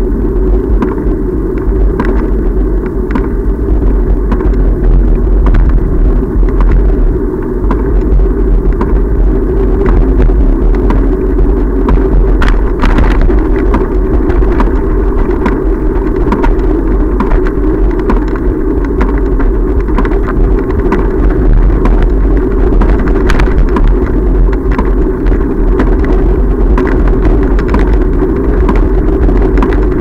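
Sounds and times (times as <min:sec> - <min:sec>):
vibration and wind rumble on microphone: 0:00.0 - 0:30.0
bike clicks and knocks: 0:00.8 - 0:03.4, 0:25.8 - 0:30.0.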